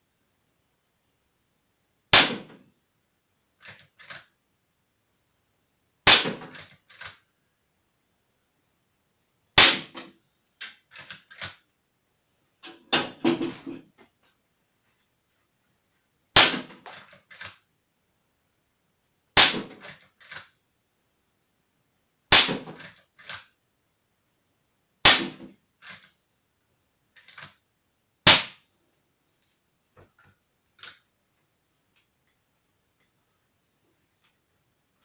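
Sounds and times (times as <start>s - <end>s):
air rifle shots: 2.1s - 2.6s, 6.0s - 7.0s, 9.6s - 10.1s, 16.4s - 17.0s, 19.4s - 19.9s, 22.3s - 22.9s, 25.0s - 25.5s, 28.3s - 28.6s.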